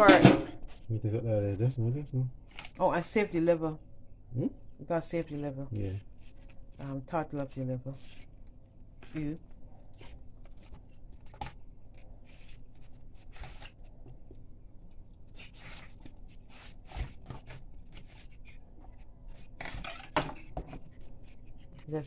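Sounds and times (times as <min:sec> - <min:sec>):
knife scraping and tearing fish: 0:12.2 - 0:14.0, 0:15.1 - 0:21.8.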